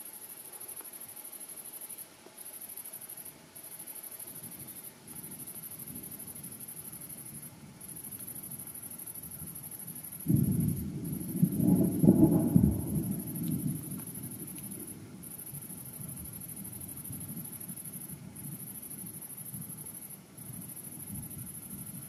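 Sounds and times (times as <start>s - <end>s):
insect chirring: 0.0s - 22.0s
thunder rumbling: 10.2s - 19.8s.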